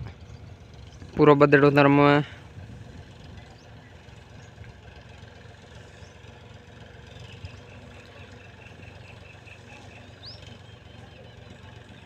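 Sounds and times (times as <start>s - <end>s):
distant tractor diesel engine: 0.0s - 12.0s.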